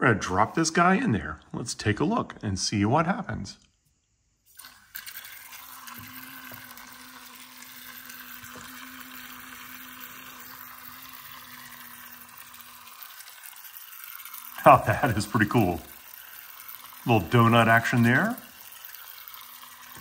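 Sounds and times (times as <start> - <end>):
toy boat propeller motor humming: 4.6 - 20.0
propeller splashing water: 4.9 - 20.0.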